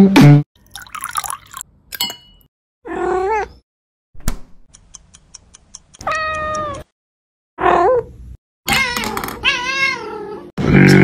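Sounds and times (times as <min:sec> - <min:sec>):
fast clock ticking: 0:04.7 - 0:06.5
cat meowing: 0:06.0 - 0:06.9, 0:08.7 - 0:10.4.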